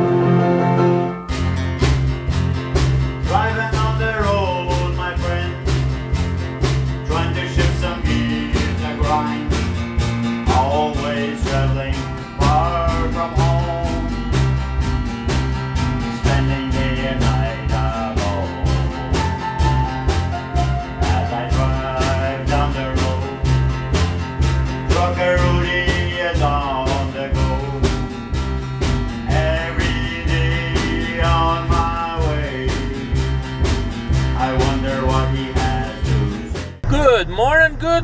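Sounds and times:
upbeat country song: 0:00.0 - 0:38.0.

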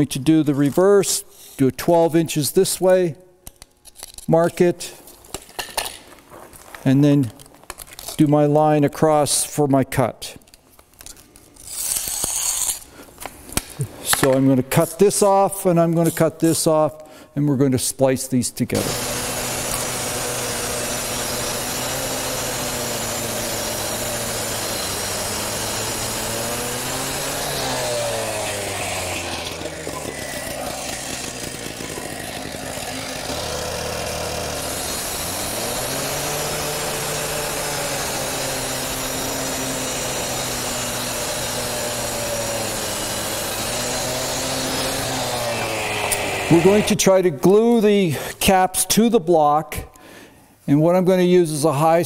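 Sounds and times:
cut-off saw cutting concrete: 0:18.7 - 0:47.6.

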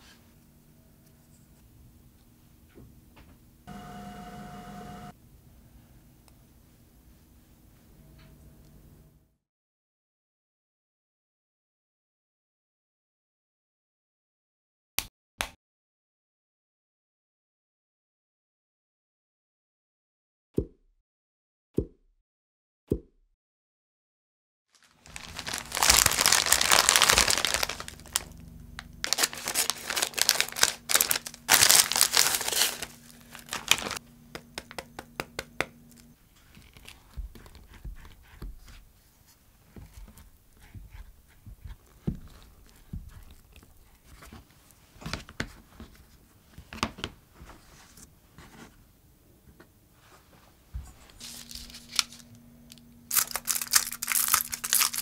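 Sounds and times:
plastic packaging crinkling and tearing: 0:24.8 - 0:34.0, 0:51.2 - 0:55.0.

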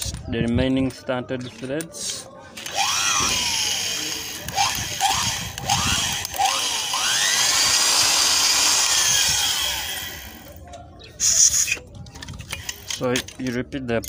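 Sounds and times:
electric drill drilling metal: 0:02.6 - 0:10.5.

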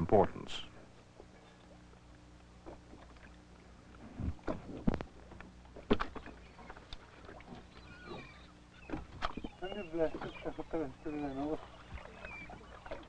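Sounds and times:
steady low hum: 0:00.0 - 0:13.0
knocks of net hauled over boat: 0:05.7 - 0:07.7.

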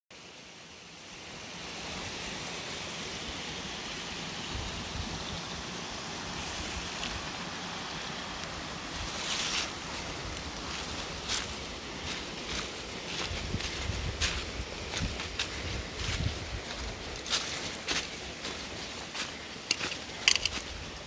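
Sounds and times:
stream rushing over rocks: 0:00.2 - 0:21.0
wind rumble on microphone: 0:10.0 - 0:17.4.

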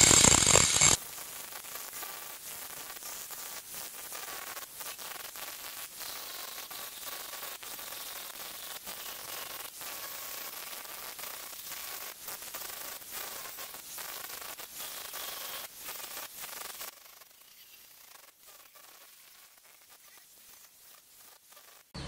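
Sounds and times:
angle grinder grinding steel: 0:00.0 - 0:01.0.

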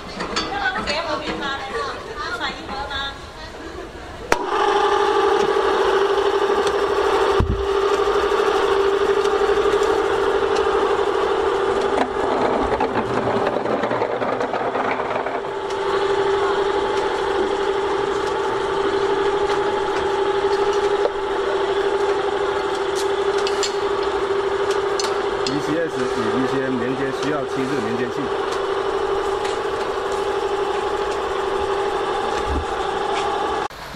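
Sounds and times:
hoist motor whining: 0:04.2 - 0:33.7
rigging clicks and rattles: 0:11.8 - 0:15.8.

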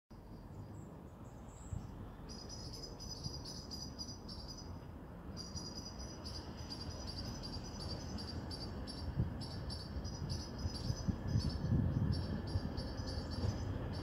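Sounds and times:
crickets chirping: 0:02.3 - 0:14.0
steady low rumble: 0:05.8 - 0:14.0.

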